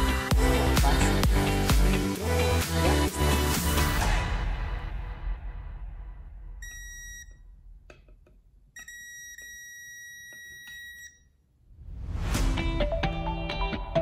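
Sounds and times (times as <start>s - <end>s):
background music: 0.0s - 6.6s, 12.0s - 14.0s
voltage tester beeping: 6.6s - 7.4s, 8.7s - 11.4s.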